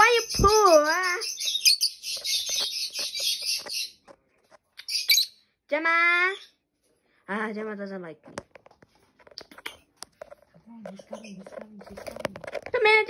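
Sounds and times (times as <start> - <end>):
parrots chirping: 0.0 - 6.6, 9.3 - 12.3.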